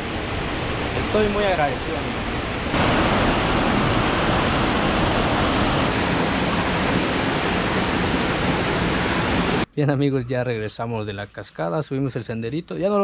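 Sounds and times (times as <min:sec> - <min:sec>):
waterfall rushing: 0:00.0 - 0:09.7.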